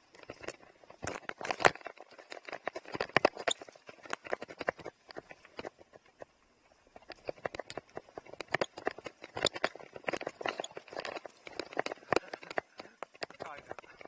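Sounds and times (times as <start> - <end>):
mountain bike clattering: 6.9 - 14.0.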